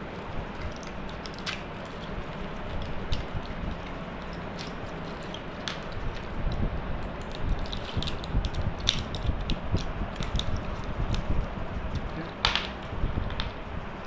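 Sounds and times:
seed pods clicking and crackling: 0.2 - 11.3, 11.9 - 13.6.

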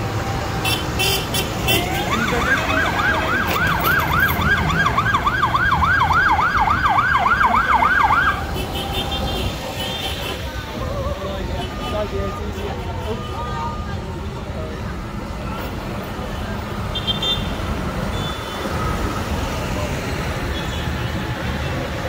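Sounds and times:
tractor engines running: 0.0 - 16.9
siren wailing up and down: 2.1 - 8.5.

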